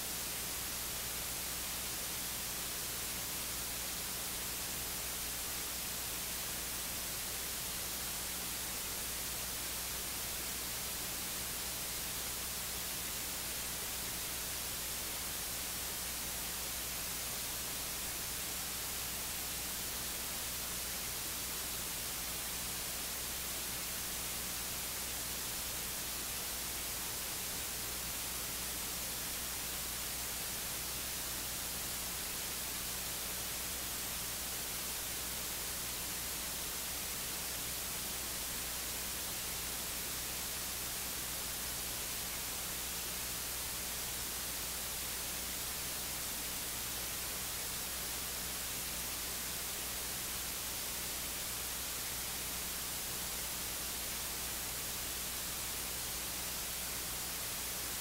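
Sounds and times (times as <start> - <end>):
electronic hiss: 0.0 - 58.0.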